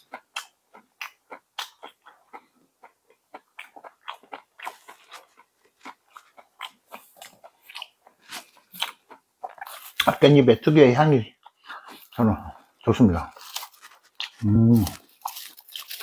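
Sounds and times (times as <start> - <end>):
person chewing food: 0.0 - 10.2, 11.3 - 16.0.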